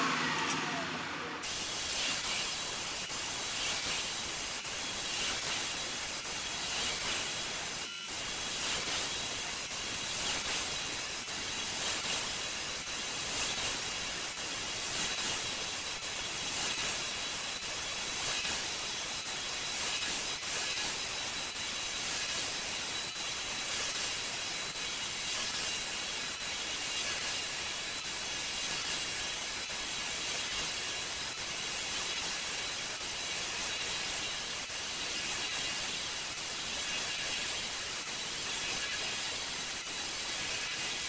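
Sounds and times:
floor sander running: 0.0 - 4.7.

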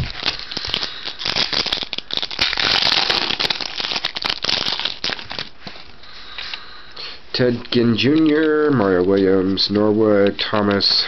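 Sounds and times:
foil wrapper crinkling: 0.0 - 6.0.

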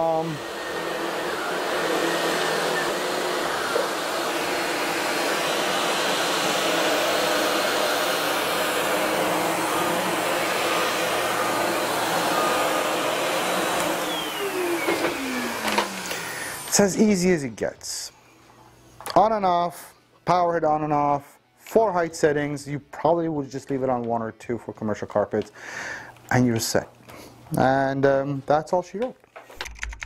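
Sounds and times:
vacuum motor spinning down: 0.0 - 16.8
upright vacuum cleaner running: 0.0 - 17.0.

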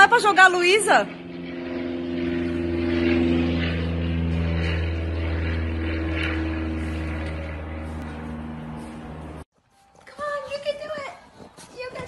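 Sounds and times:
low mechanical drone with hum: 0.0 - 9.4.

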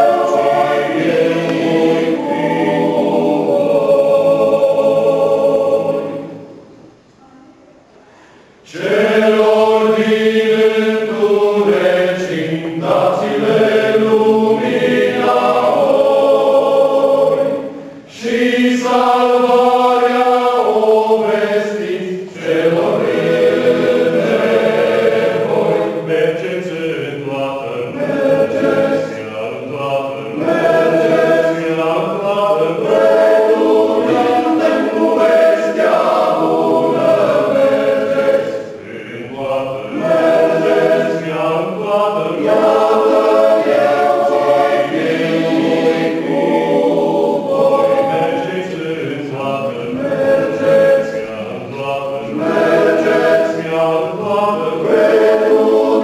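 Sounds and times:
men's choir singing a hymn: 0.0 - 6.6, 8.6 - 56.0
short breaths: 8.0 - 8.6.

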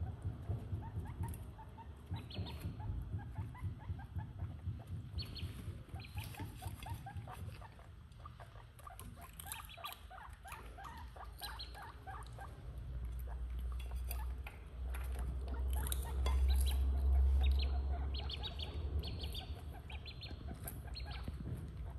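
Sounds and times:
ducklings peeping: 0.0 - 21.9
nibbling and chewing clicks: 8.1 - 17.6.

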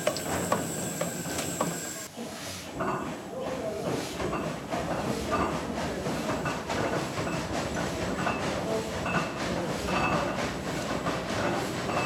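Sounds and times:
steam engine chuffing: 0.0 - 2.1, 3.5 - 12.0.

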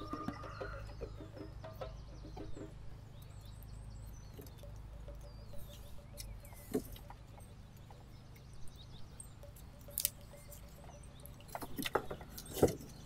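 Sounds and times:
dry sticks rustling and clicking: 9.4 - 13.0.

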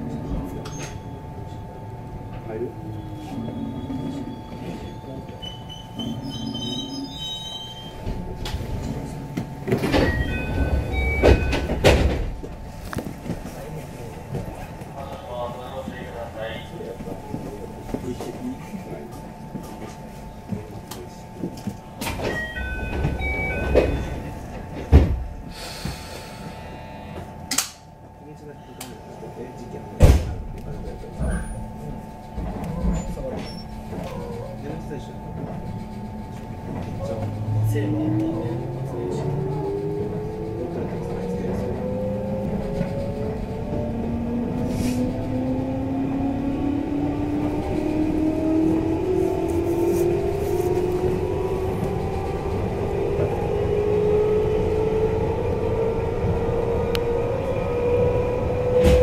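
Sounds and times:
train rumble and hum: 0.0 - 59.0
sharp click: 27.5 - 27.8.

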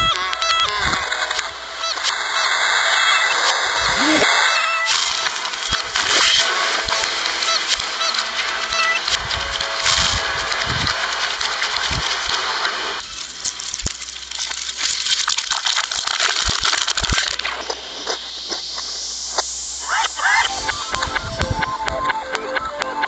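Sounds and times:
fizzing hiss: 9.4 - 21.0.

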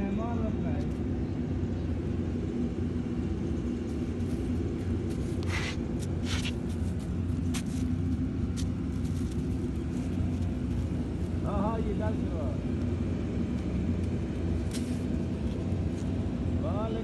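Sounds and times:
low mechanical rumble: 0.0 - 17.0
short hissing noises: 5.2 - 6.9.

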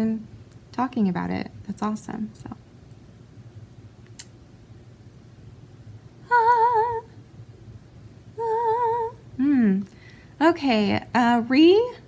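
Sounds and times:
woman humming with vibrato: 8.4 - 9.8.

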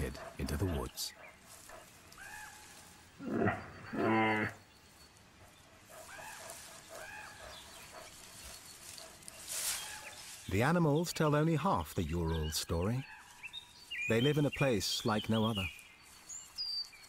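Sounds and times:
bear calling: 2.1 - 4.7.

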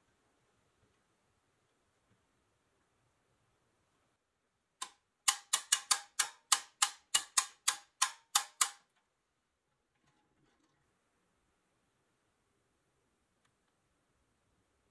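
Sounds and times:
metallic toy clicks: 4.8 - 8.8.

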